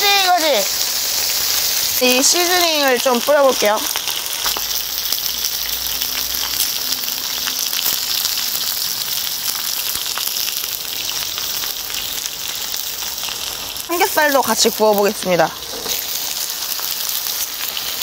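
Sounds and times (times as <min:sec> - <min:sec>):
meat sizzling on a griddle: 0:00.0 - 0:18.0.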